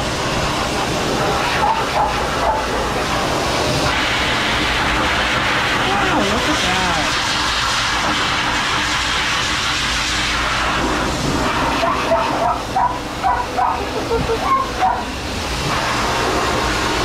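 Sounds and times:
grooming dryer blowing: 0.0 - 17.0
dog high-pitched calls: 11.8 - 15.2.

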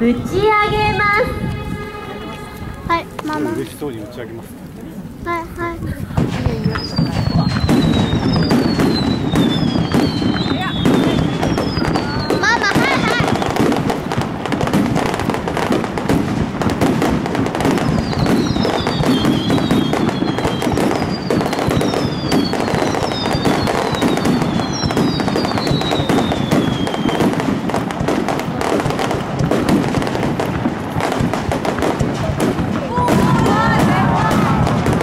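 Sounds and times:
fireworks bangs and crackling: 0.0 - 35.0
falling firework whistles: 6.6 - 13.9, 17.6 - 27.6.

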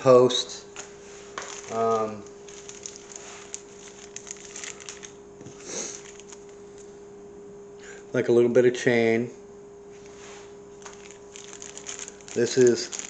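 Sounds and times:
faint steady hum: 0.0 - 13.0
plastic bags crinkling: 1.4 - 6.6, 10.8 - 13.0
small parts clicking: 3.8 - 5.2, 10.8 - 13.0.

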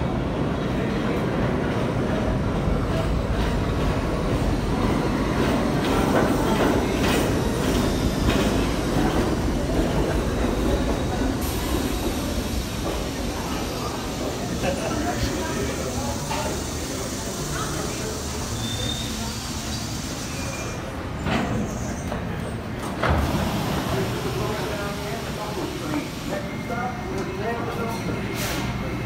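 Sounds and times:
subway train rumble: 0.0 - 29.0
faint high squeal: 18.6 - 19.3.

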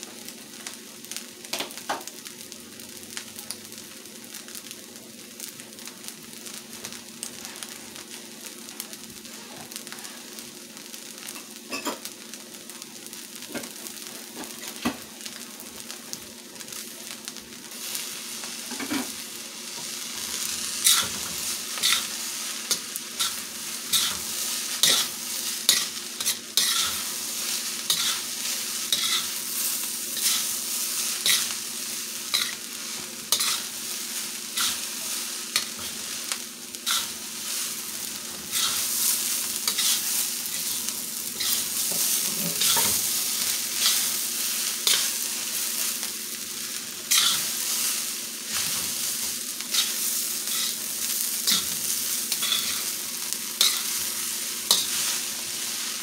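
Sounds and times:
rice sizzling in a wok: 0.0 - 56.0
metal spatula scraping a wok: 20.8 - 25.1, 25.7 - 29.4, 30.2 - 31.5, 32.3 - 32.6, 33.3 - 33.7, 34.6 - 34.9, 36.8 - 37.2, 38.5 - 40.8, 41.4 - 43.2, 44.8 - 45.2, 47.1 - 47.6, 49.7 - 50.8, 51.4 - 53.0, 53.6 - 54.1, 54.7 - 55.2.

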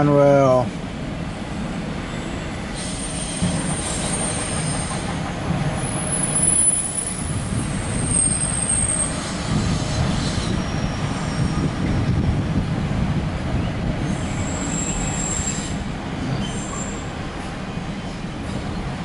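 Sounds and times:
train wheels rumbling on rail: 0.0 - 19.0
high-pitched wheel squeals: 5.8 - 11.8, 14.1 - 17.1.

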